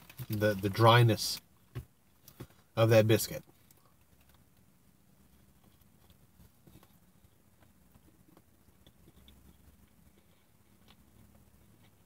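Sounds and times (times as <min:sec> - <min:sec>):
low steady hum: 0:00.0 - 0:12.0
chewing and mouth clicks: 0:05.6 - 0:12.0.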